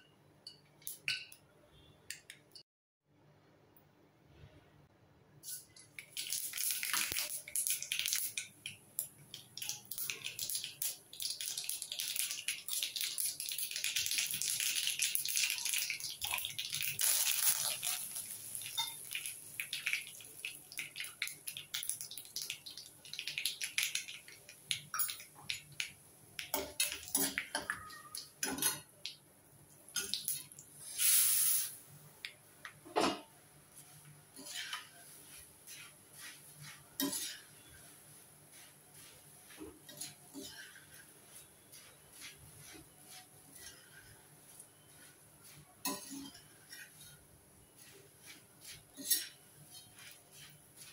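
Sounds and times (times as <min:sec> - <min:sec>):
leaves sizzling in oil: 0:05.4 - 0:27.4, 0:30.0 - 0:31.8, 0:33.7 - 0:50.9
seeds crackling in hot oil: 0:05.4 - 0:32.8, 0:33.7 - 0:50.9
spoon scraping a steel pan: 0:34.4 - 0:38.0, 0:39.5 - 0:50.9.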